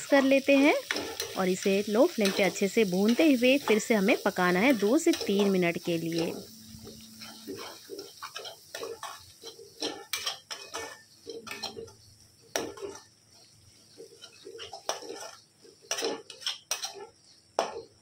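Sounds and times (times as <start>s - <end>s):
paste frying: 0.0s - 18.0s
spatula scraping metal pan: 2.0s - 17.9s.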